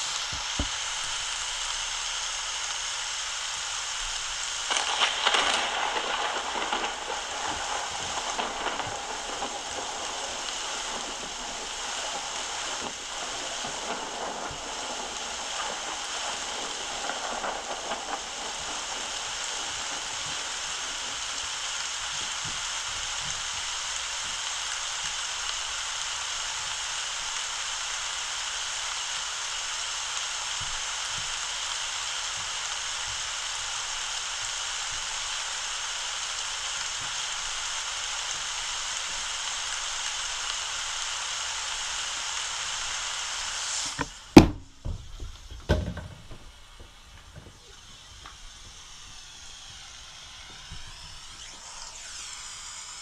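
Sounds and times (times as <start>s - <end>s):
rain hiss: 0.0s - 53.0s
crackling thunderclap: 3.9s - 42.0s
thunder rumbles: 4.6s - 25.9s.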